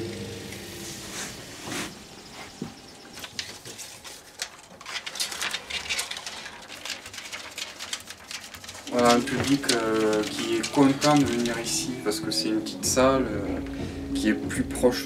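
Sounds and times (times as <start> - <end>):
film rustling: 1.8 - 14.3
film and metal parts clicking: 3.1 - 11.9.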